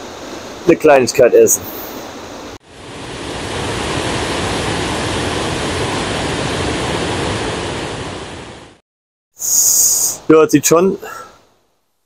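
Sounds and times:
waterfall rushing: 0:01.6 - 0:08.8.

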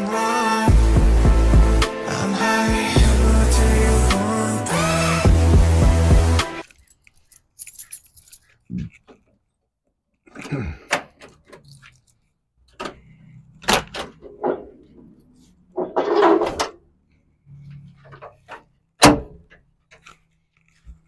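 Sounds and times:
keys jangling: 0:06.6 - 0:09.1, 0:11.4 - 0:12.2.

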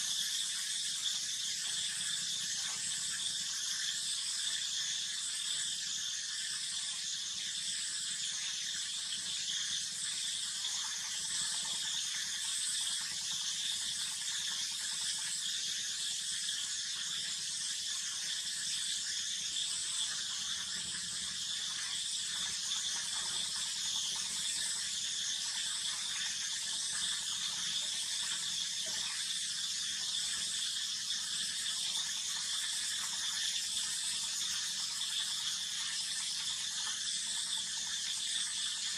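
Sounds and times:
high-pitched insect chorus: 0:00.0 - 0:38.9.

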